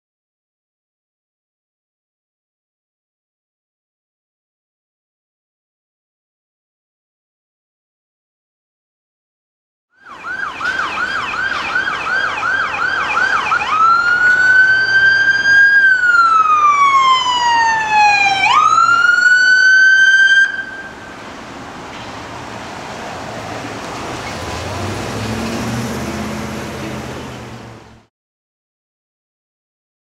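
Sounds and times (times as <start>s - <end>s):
ambulance siren yelp and wail: 10.0s - 21.3s
traffic noise: 10.0s - 28.1s.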